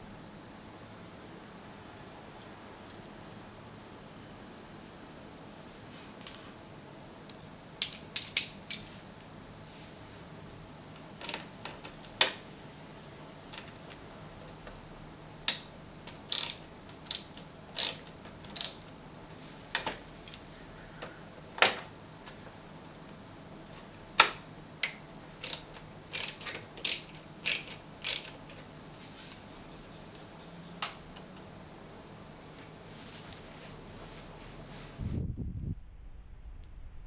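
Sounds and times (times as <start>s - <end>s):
ratcheting screwdriver clicking: 16.3s - 18.8s, 24.8s - 28.5s.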